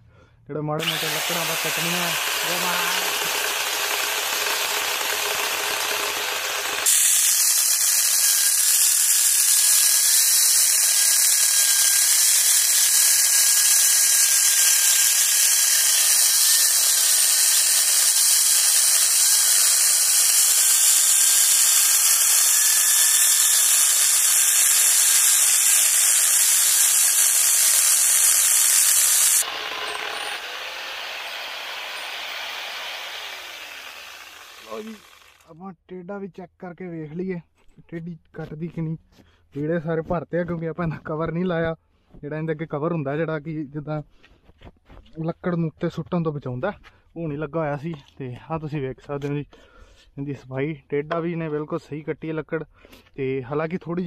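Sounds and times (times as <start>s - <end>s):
chainsaw cutting through log: 0.8s - 35.5s.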